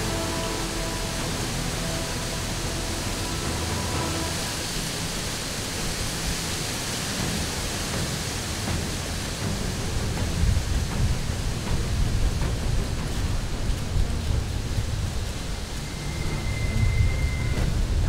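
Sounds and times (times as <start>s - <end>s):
low rumbles: 0.0s - 18.0s
steady rushing hiss: 0.0s - 18.0s.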